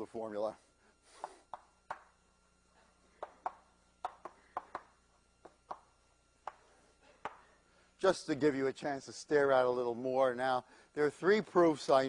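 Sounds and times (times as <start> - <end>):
chalk tapping on blackboard: 1.2 - 2.1, 3.2 - 6.6.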